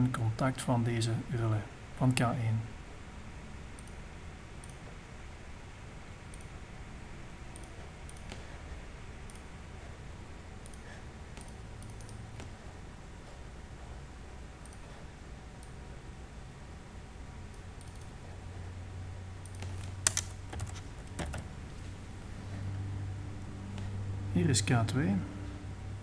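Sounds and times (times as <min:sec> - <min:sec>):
low steady hiss: 0:00.0 - 0:26.0
computer mouse clicking: 0:03.8 - 0:04.0, 0:04.6 - 0:04.8, 0:06.3 - 0:06.5, 0:07.5 - 0:08.5, 0:09.2 - 0:09.5, 0:10.6 - 0:12.6, 0:14.6 - 0:14.9, 0:17.5 - 0:18.1, 0:19.4 - 0:21.4.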